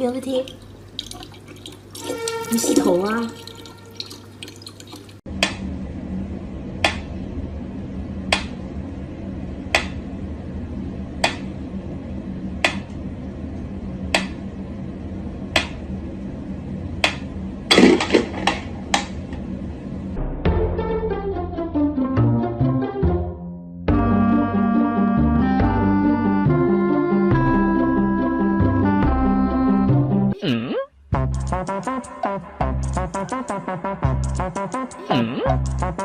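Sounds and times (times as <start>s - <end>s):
low hum: 5.3s - 21.8s.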